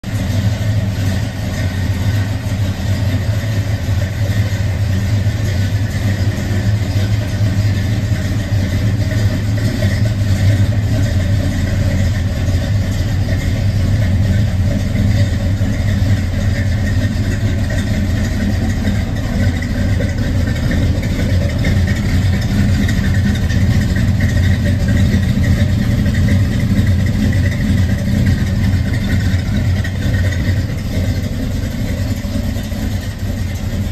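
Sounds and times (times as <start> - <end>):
pickup engine idling: 0.0 - 33.9.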